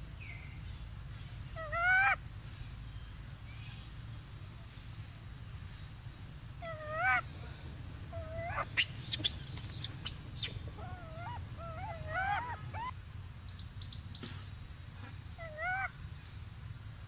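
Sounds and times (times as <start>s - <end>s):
steady low hum: 2.2s - 17.0s
monkey high wavering calls: 6.6s - 7.2s, 8.1s - 13.0s, 15.4s - 15.9s.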